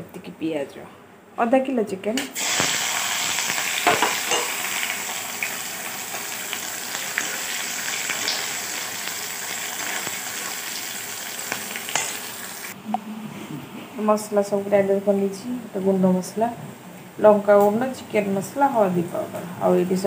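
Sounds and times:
onions sizzling in hot oil: 2.4s - 12.8s.

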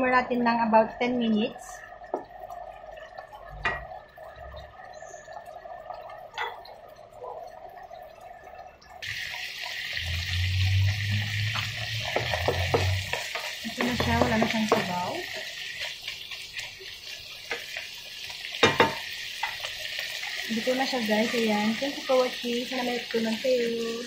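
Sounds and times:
meat and potatoes sizzling: 9.0s - 24.0s.

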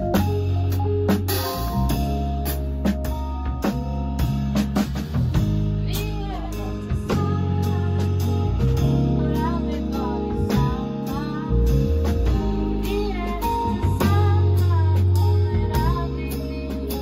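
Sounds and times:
band playing a groove: 0.0s - 17.0s
woman singing: 5.8s - 17.0s.

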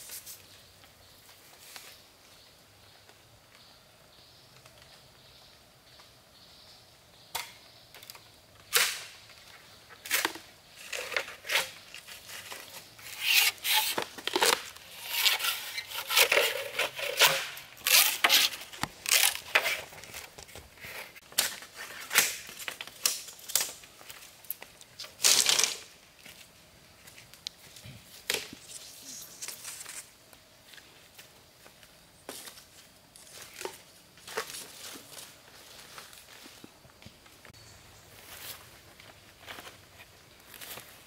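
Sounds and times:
bamboo cracking and splitting: 7.3s - 26.0s, 28.2s - 28.7s.

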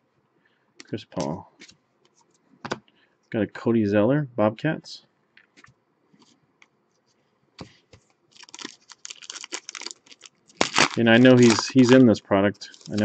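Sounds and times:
foil wrapper crinkling and tearing: 8.3s - 13.0s.

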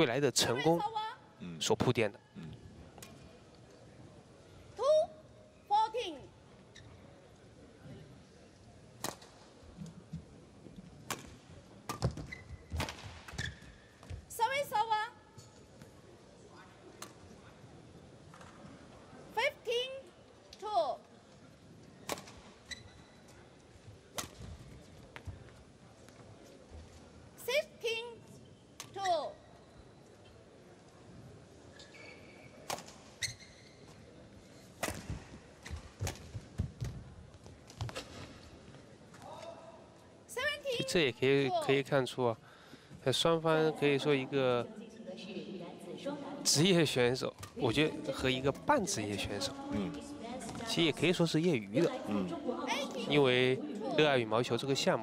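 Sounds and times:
shoes squeaking on court: 11.9s - 14.1s, 22.4s - 23.4s, 31.7s - 36.5s
rackets hitting shuttlecock: 24.1s - 24.5s, 34.8s - 36.4s.

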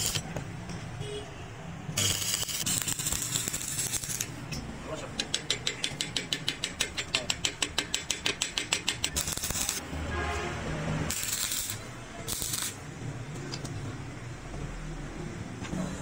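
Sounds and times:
welding arc crackling hiss: 0.0s - 0.2s, 2.0s - 4.4s, 9.1s - 9.8s, 11.1s - 12.8s
hammer tapping on steel: 4.5s - 9.2s.

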